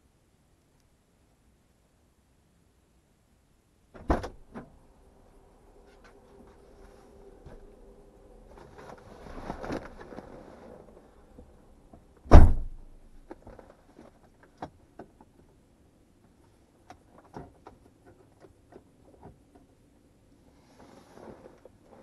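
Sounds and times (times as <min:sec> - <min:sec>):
car door thump: 0:04.0 - 0:04.4, 0:12.3 - 0:12.9.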